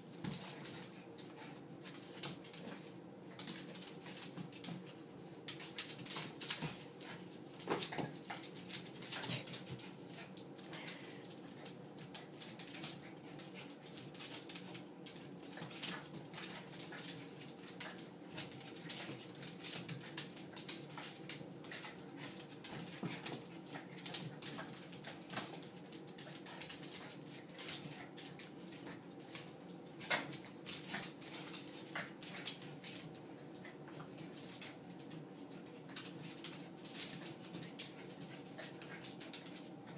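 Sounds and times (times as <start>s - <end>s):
dogs scuffling: 0.1s - 39.9s.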